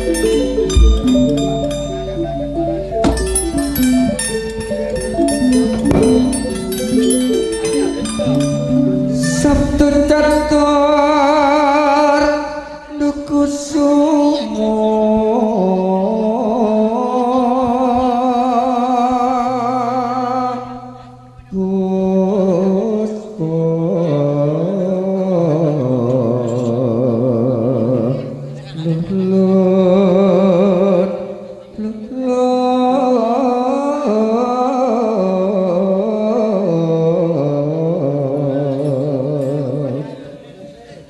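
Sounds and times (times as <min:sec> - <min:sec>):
gamelan music: 0:00.0 - 0:14.0
metallophone notes: 0:00.0 - 0:14.0.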